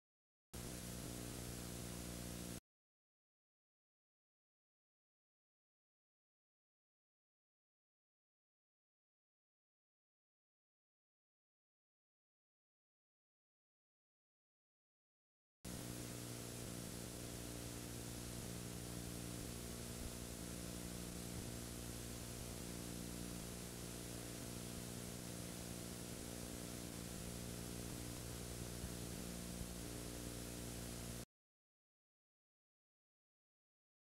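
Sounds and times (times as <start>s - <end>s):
constant hiss: 0.6s - 2.6s, 15.7s - 31.2s
electrical hum: 0.6s - 2.6s, 15.7s - 31.3s.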